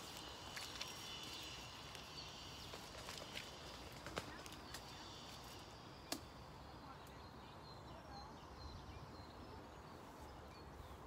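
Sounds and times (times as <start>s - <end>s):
distant bird chirps: 0.0s - 11.0s.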